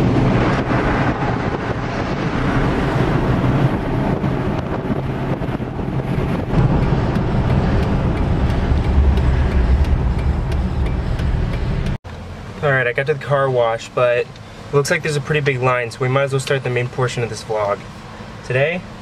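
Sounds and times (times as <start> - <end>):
deep rumble: 0.0 - 12.0
low engine drone: 0.0 - 13.1
road and wind noise in car: 0.0 - 19.0.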